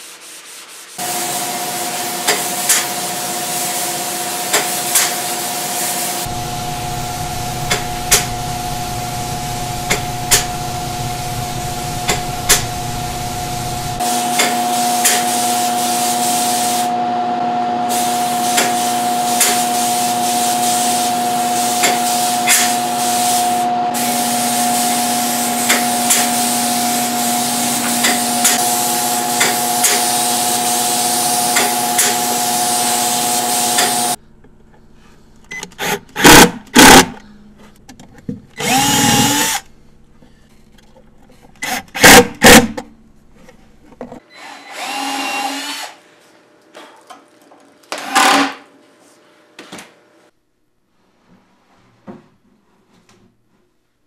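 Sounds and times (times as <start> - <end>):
spray gun hissing: 1.0 - 16.9, 17.9 - 34.2
machine hum: 5.4 - 35.5
impact driver driving screws: 35.7 - 37.1, 38.6 - 39.6.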